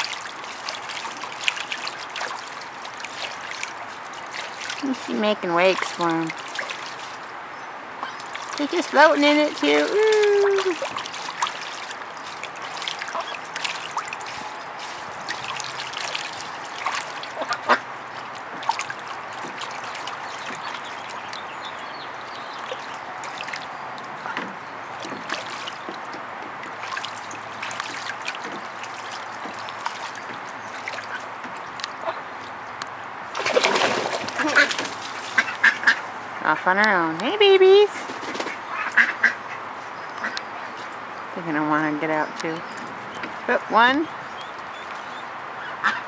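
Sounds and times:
sharp splash: 0.0s - 7.3s, 8.0s - 26.1s, 26.7s - 32.2s, 33.3s - 36.1s
water dripping: 0.0s - 37.8s, 40.0s - 46.0s
water lapping and splashing: 0.0s - 46.0s.

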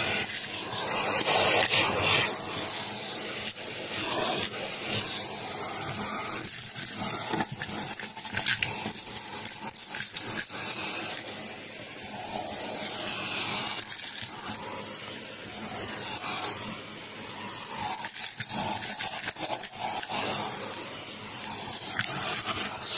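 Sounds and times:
vacuum cleaner running: 0.0s - 22.9s
hard bits rattling up a hose: 6.4s - 11.2s, 17.9s - 20.2s.

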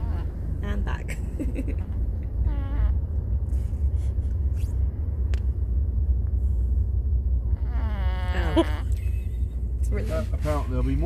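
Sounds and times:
car rumbling on road: 0.0s - 11.0s
dog snoring: 7.5s - 8.8s.

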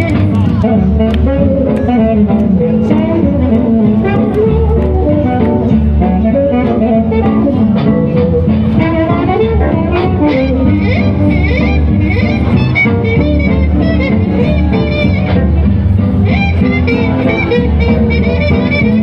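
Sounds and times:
bass line: 0.0s - 19.0s
guitar music: 0.0s - 19.0s.

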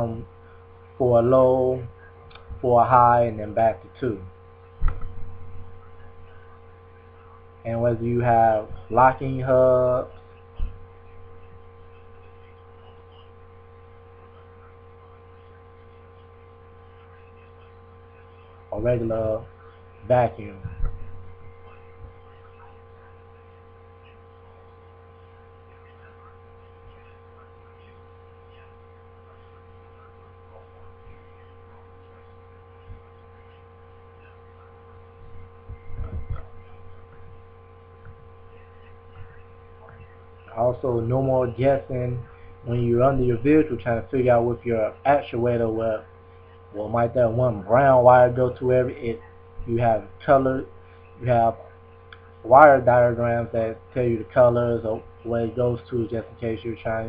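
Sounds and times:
electrical mains hum: 0.0s - 57.0s
soft low thumps: 4.4s - 6.9s, 10.1s - 12.8s, 20.5s - 23.4s, 35.0s - 40.4s.

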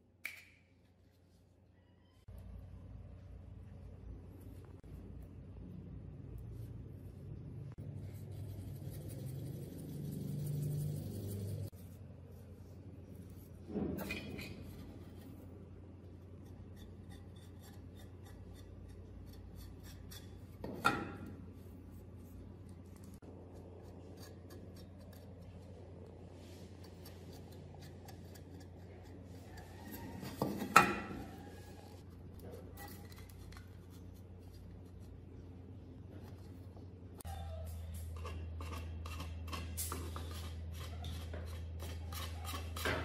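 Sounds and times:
rubbing and scraping of parts: 7.8s - 36.9s.

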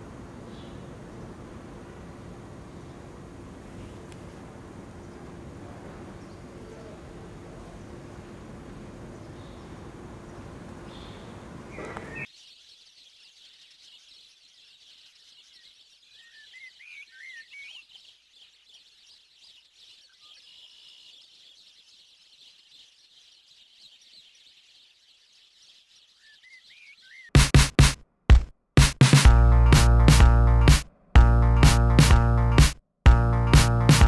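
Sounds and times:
street noise: 0.0s - 12.3s
quiet outdoor hiss: 0.0s - 27.3s
faint birds chirping: 0.0s - 27.4s
loud music: 27.4s - 34.0s.

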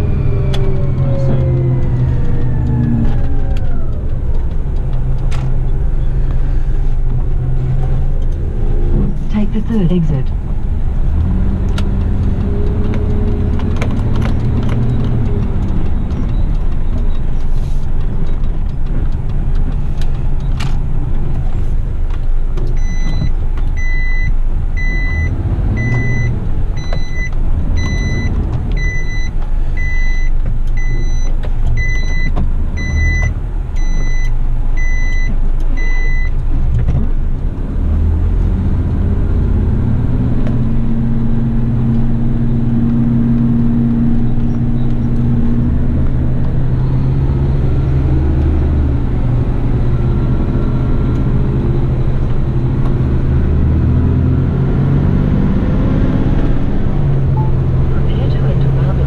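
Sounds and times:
diesel truck engine running: 0.0s - 59.0s
reversing alarm beeps: 22.8s - 36.3s.

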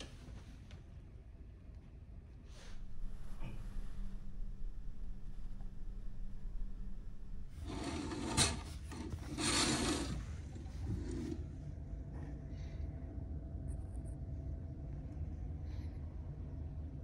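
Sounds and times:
low drone of ship engines: 2.6s - 8.4s
curtain swishing: 2.6s - 11.2s.

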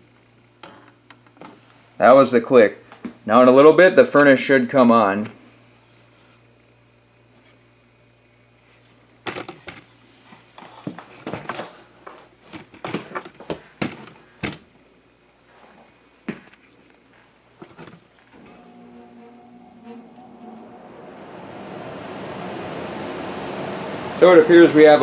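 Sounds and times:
faint steady hum: 0.0s - 25.0s
footsteps indoors: 10.3s - 14.6s, 15.4s - 18.4s.

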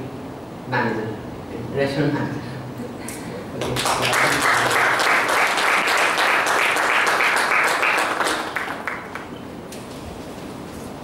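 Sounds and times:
audience applauding: 3.6s - 9.4s.

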